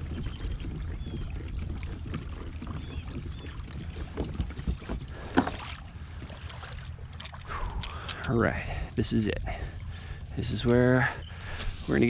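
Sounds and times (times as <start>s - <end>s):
wind rumble on microphone: 0.0s - 7.9s
water washing along hull: 0.0s - 8.2s.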